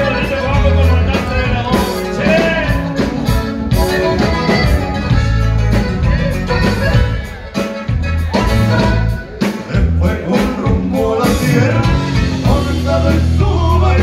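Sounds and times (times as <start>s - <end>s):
person singing: 0.0s - 4.8s, 8.3s - 14.0s
live band music: 0.0s - 14.0s.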